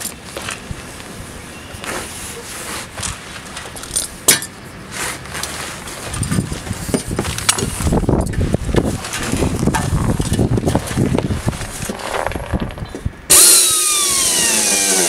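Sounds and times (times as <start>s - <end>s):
metal clinks and knocks: 3.6s - 4.6s, 6.0s - 8.4s
low rubbing and knocking: 5.5s - 13.2s.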